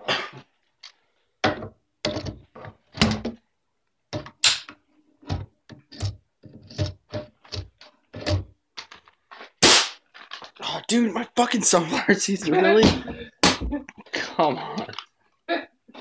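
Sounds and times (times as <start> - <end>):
irregular knocks and thuds: 5.2 - 8.9.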